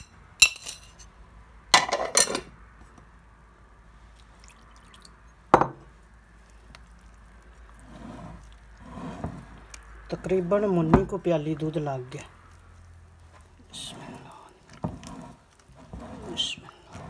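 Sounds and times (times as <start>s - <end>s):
milk pouring into batter: 4.0s - 17.0s.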